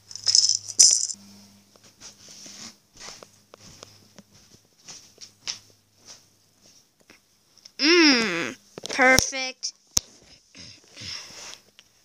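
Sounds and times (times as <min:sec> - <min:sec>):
low steady hum: 0:00.0 - 0:02.6.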